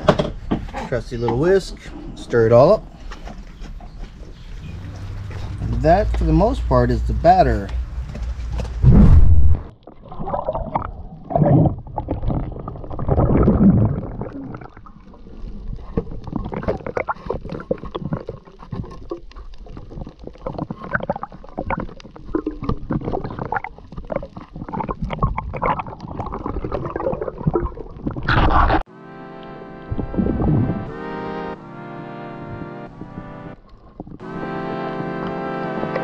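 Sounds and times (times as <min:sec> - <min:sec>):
underwater water gurgling: 0:09.4 - 0:28.8, 0:33.1 - 0:34.2
small underwater clicks and knocks: 0:14.2 - 0:28.5, 0:33.6 - 0:34.2.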